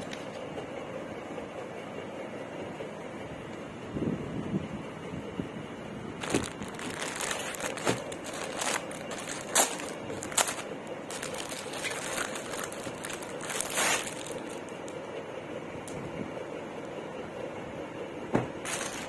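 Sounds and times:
plastic packet crinkling: 6.2s - 14.9s, 18.6s - 19.0s.

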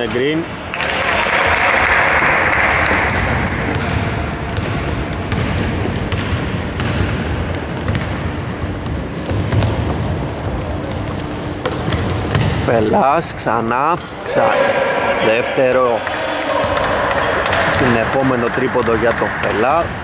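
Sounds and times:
sneaker squeaks on floor: 2.5s - 4.1s, 5.3s - 7.0s, 7.8s - 10.0s
basketball bouncing: 2.6s - 12.6s, 16.0s - 20.0s
footsteps on hardwood court: 4.5s - 12.6s.

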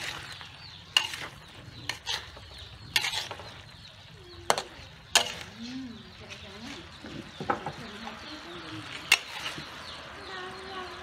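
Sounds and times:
metal spatula scraping wok: 0.0s - 7.4s, 8.8s - 10.0s.

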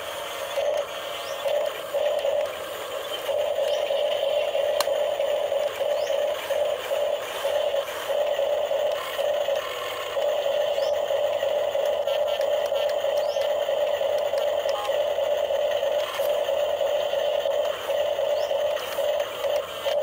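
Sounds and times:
small gear motors whirring: 0.0s - 20.0s.

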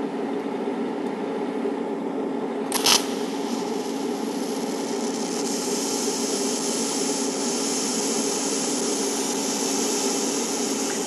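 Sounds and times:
welding arc hissing: 2.7s - 11.0s.

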